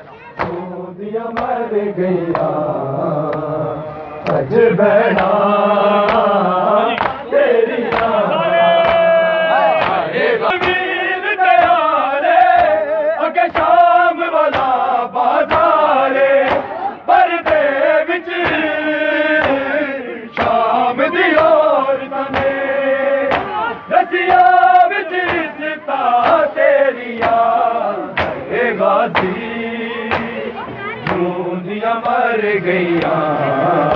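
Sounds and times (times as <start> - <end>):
men chanting a lament in unison: 0.4 - 33.9
hands slapping on chests: 1.3 - 1.6, 6.0 - 6.3, 6.9 - 7.2, 7.9 - 8.2, 8.8 - 9.1, 9.8 - 10.8, 12.4 - 12.8, 14.4 - 15.8, 16.4 - 16.7, 17.4 - 17.7, 19.4 - 19.7, 20.3 - 20.6, 22.3 - 22.6, 23.2 - 23.6, 24.2 - 25.5, 26.2 - 26.4, 27.1 - 28.5, 29.1 - 29.4, 30.1 - 30.4, 31.0 - 31.3, 32.9 - 33.2.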